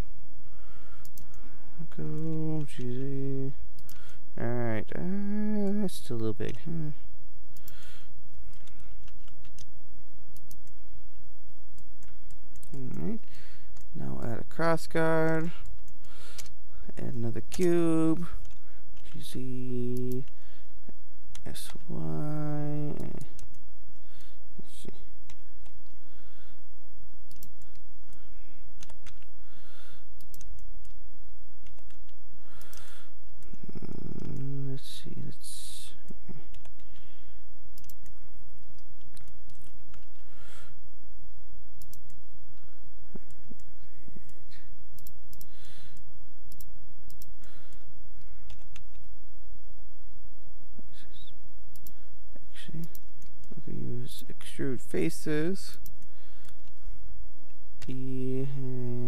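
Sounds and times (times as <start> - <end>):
steady low hum: 0.0 - 59.0
keyboard and mouse clicking: 8.5 - 9.7, 10.4 - 10.8, 11.8 - 13.9, 27.3 - 28.2, 28.8 - 29.3, 30.2 - 31.0, 31.6 - 34.5, 36.1 - 37.0, 37.8 - 40.3, 41.8 - 42.2, 48.4 - 49.0.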